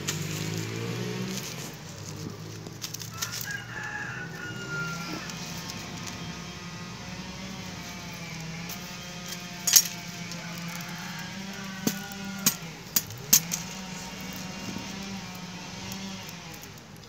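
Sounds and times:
metal traps and forceps clinking: 7.6 - 15.4.

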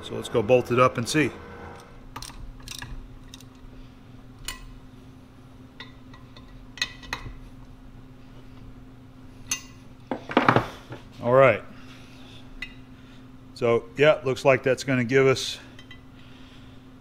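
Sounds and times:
steady low hum: 0.0 - 17.0
tools clattering: 2.1 - 3.6
metal tools clinking: 2.2 - 3.6.

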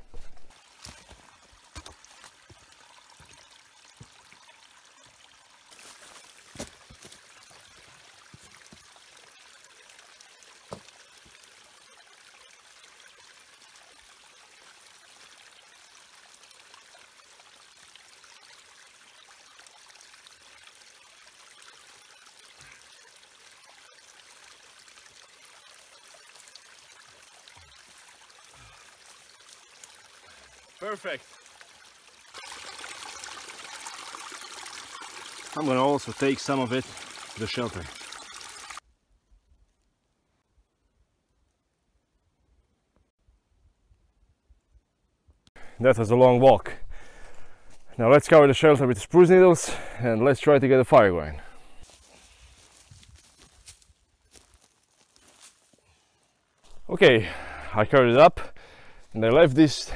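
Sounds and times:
footsteps on stony ground: 0.0 - 3.4, 5.7 - 8.6, 51.8 - 56.0
creek trickling over rocks: 0.0 - 38.8, 45.5 - 59.9.

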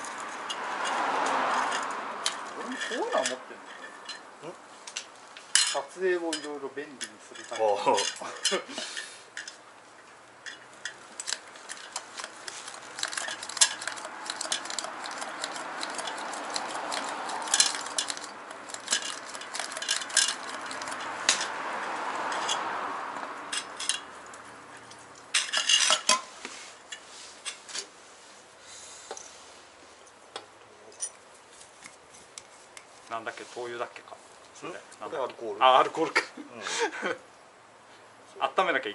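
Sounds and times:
metal parts clinking: 4.9 - 9.6, 10.4 - 21.5, 23.5 - 26.3.

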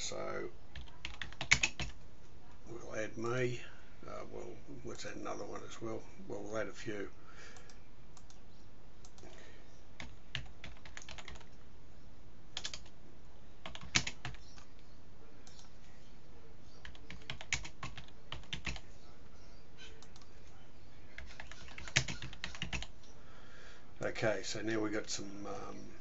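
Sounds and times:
typing on computer keyboard: 0.7 - 2.0, 10.0 - 11.6, 12.6 - 12.9, 13.6 - 14.7, 16.8 - 18.8, 21.2 - 22.9.

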